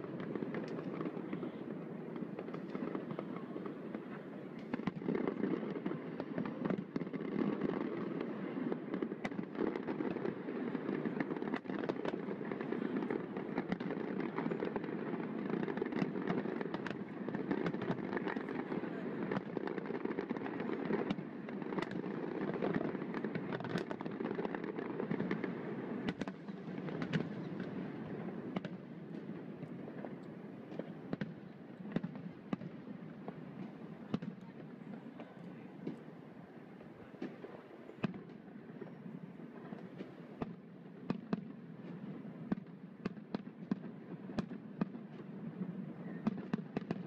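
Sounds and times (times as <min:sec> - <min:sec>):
fireworks booming: 0:00.0 - 0:36.1
fireworks cracks: 0:00.0 - 0:36.1.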